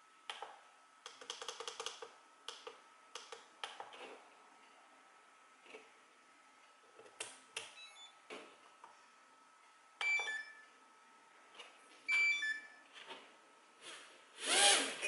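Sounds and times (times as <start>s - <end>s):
electronic beep sequences: 12.1s - 12.8s.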